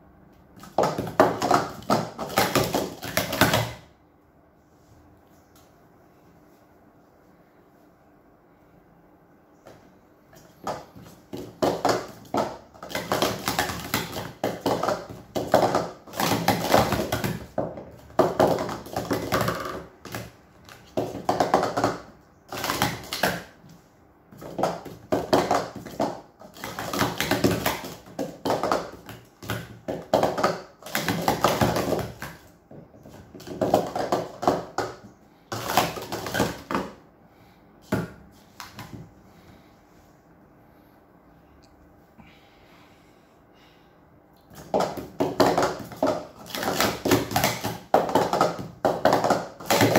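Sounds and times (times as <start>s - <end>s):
plastic cups clattering: 0.6s - 3.8s, 10.4s - 23.6s, 24.4s - 37.0s, 44.5s - 49.9s.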